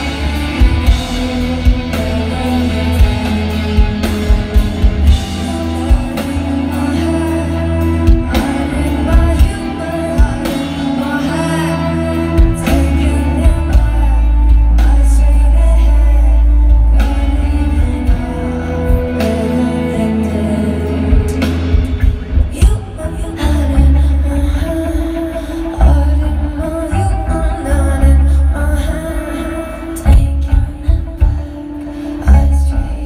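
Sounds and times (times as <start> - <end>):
bass guitar: 0.0 - 33.0
drums: 0.0 - 33.0
electric guitars: 0.0 - 33.0
woman singing: 0.0 - 33.0.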